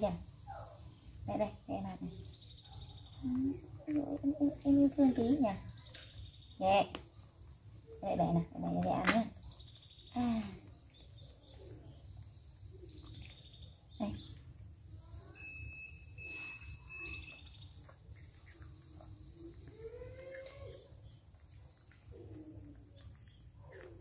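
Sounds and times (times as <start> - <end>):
macaques squeaking and cooing: 16.4 - 21.4.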